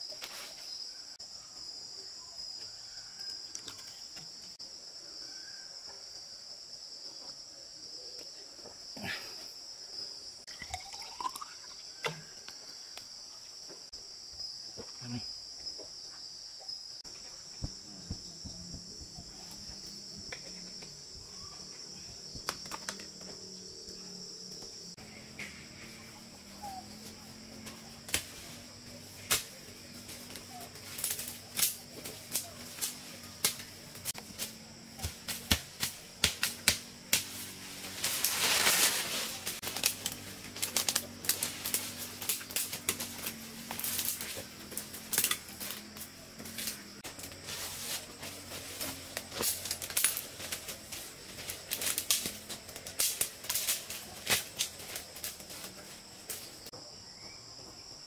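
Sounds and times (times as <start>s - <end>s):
insects buzzing: 0.0s - 58.0s
leaves rustling: 25.6s - 56.7s
footsteps on dry leaves and twigs: 37.1s - 56.6s.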